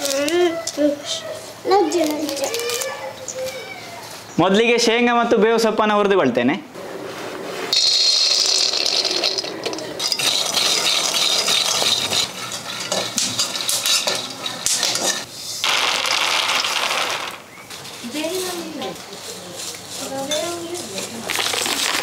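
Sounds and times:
peanuts poured into metal pan: 7.7s - 14.8s, 15.6s - 17.4s, 21.2s - 22.0s
metal spatula stirring nuts: 7.7s - 15.3s.

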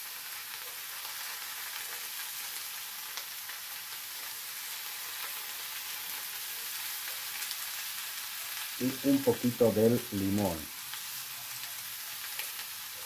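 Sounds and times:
vegetables sizzling in oil: 0.0s - 13.0s.

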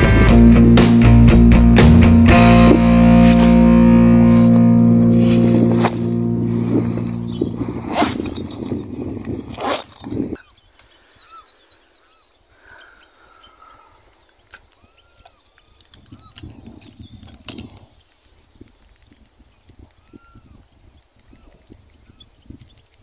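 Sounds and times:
rustling through grass: 2.3s - 10.8s
short chirping calls: 2.4s - 18.4s
backpack rustling and knocking: 2.7s - 10.3s.

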